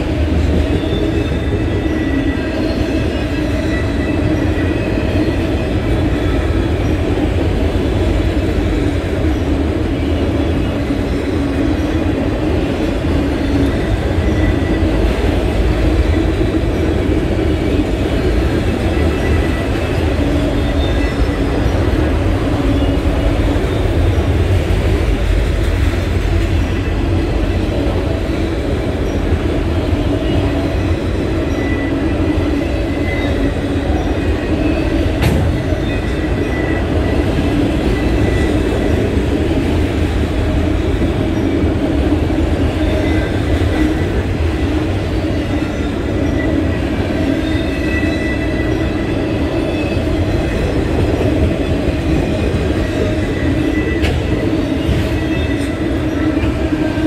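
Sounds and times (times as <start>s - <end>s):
train wheels rumbling on rails: 0.0s - 57.0s
train car clank: 30.2s - 41.4s, 49.6s - 57.0s.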